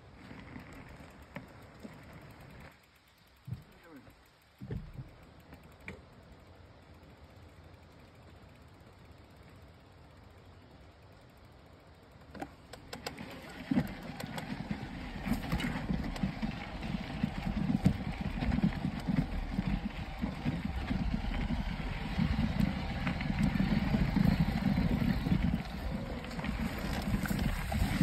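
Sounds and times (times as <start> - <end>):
bike tyres rumbling on dirt: 0.0 - 6.4, 12.2 - 28.0
wind buffeting microphone: 15.1 - 28.0.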